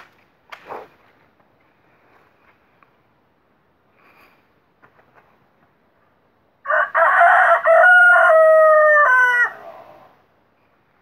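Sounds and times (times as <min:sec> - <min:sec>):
rooster crowing: 0:06.6 - 0:10.1.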